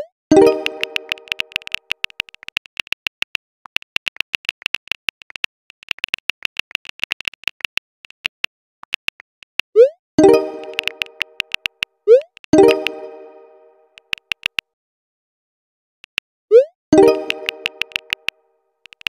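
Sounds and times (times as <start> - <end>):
keyboard key clicks: 0.4 - 9.6, 10.3 - 13.0, 14.0 - 14.6, 17.0 - 19.0.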